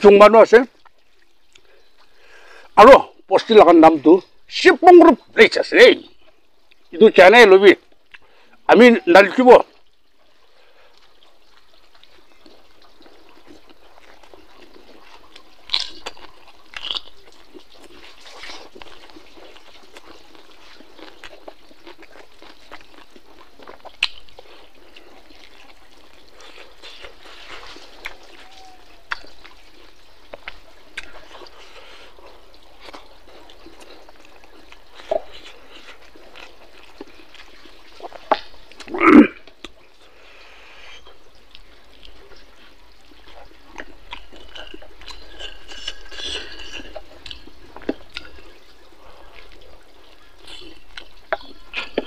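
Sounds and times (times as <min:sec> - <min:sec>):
person chewing food: 0:00.8 - 0:02.8, 0:07.8 - 0:08.7, 0:09.8 - 0:52.0
wet mouth smacks and clicks: 0:21.0 - 0:24.5.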